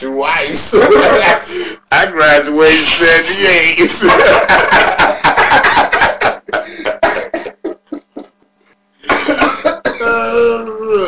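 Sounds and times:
man laughing hard: 0:00.7 - 0:01.7, 0:03.8 - 0:08.4, 0:09.0 - 0:10.2.

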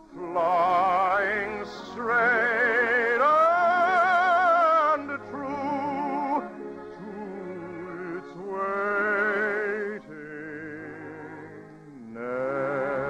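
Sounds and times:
operatic voice singing: 0:00.0 - 0:13.0
orchestral accompaniment: 0:00.0 - 0:13.0.

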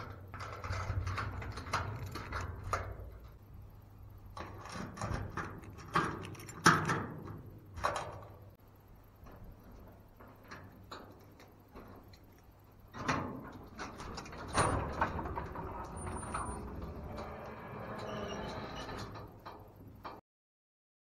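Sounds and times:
knocks clicks and rattles: 0:00.0 - 0:03.5, 0:04.2 - 0:08.4, 0:09.2 - 0:18.1
faint steady hum: 0:00.0 - 0:20.2.

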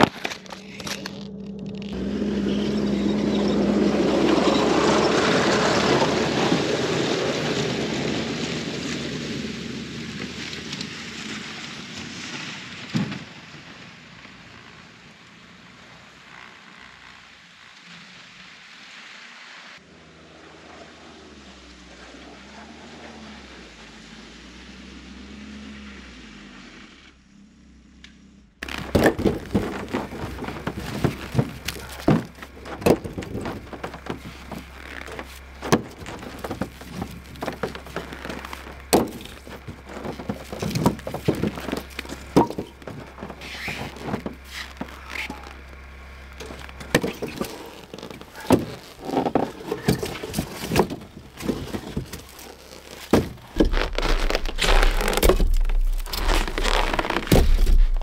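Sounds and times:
logs knocking on wood: 0:28.6 - 0:45.4, 0:46.5 - 0:58.0.

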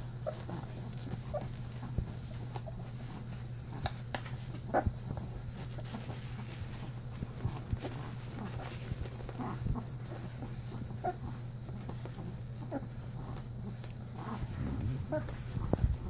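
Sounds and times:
puppies whimpering and squeaking: 0:00.2 - 0:03.3, 0:09.2 - 0:15.9.

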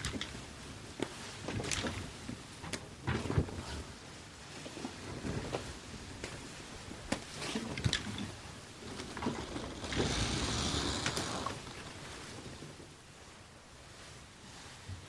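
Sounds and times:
rigging ropes creaking and knocking: 0:00.0 - 0:03.8, 0:04.6 - 0:13.2
sail canvas rustling: 0:00.0 - 0:15.0.

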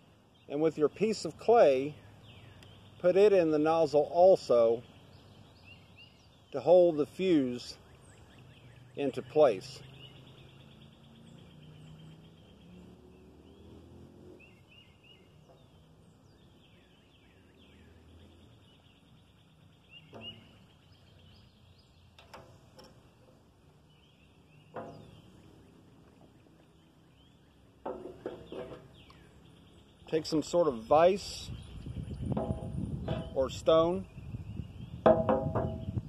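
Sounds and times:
faint bird chirps: 0:07.7 - 0:35.0
light knocks and taps: 0:24.7 - 0:25.2.

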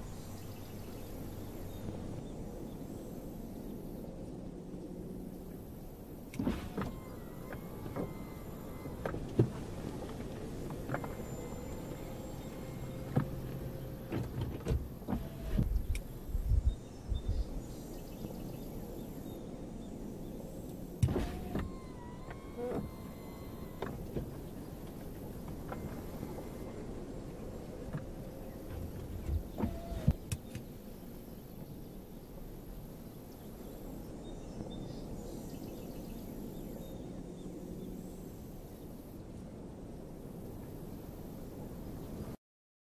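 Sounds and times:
steady low hiss: 0:00.0 - 0:42.4
car roof folding clicks and thumps: 0:06.4 - 0:16.0, 0:21.0 - 0:26.6, 0:27.8 - 0:30.7.

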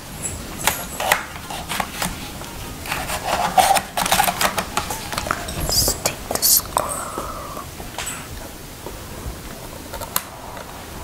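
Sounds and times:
plastic and metal clicks and scraping: 0:00.6 - 0:06.4.

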